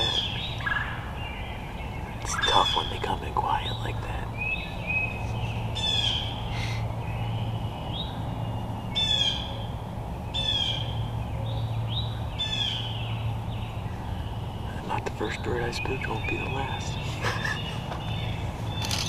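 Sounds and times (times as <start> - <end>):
rattly bird calls: 0.0 - 7.6, 12.4 - 19.0
steady low hum: 0.0 - 19.0.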